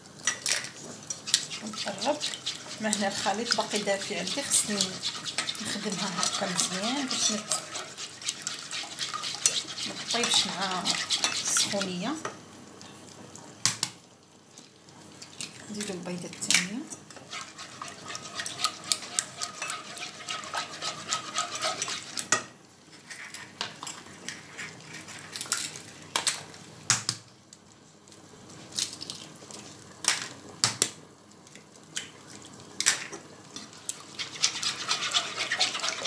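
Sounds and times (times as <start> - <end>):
wet stirring: 0.8 - 12.0, 16.9 - 22.4, 33.5 - 36.0
utensil beating batter in pan: 0.8 - 12.2, 17.0 - 22.4, 33.5 - 36.0.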